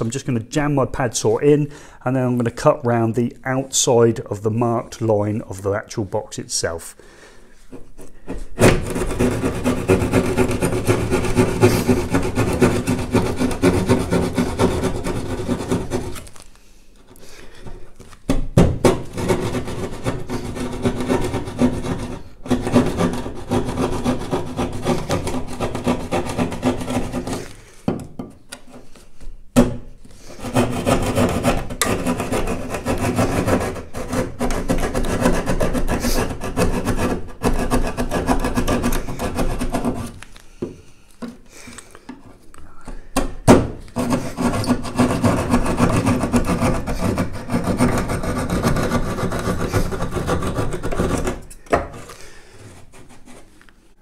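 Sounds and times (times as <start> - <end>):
saw cutting plasterboard: 8.3 - 16.4, 18.6 - 27.6, 30.3 - 40.2, 43.4 - 53.5.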